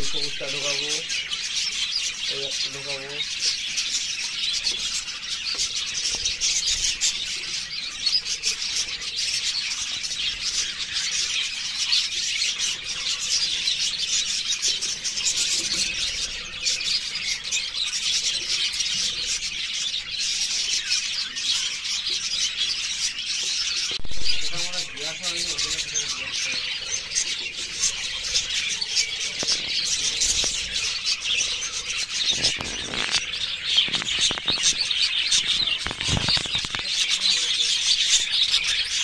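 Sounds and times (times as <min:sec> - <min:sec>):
flock of budgerigars chattering: 0:00.0 - 0:39.0.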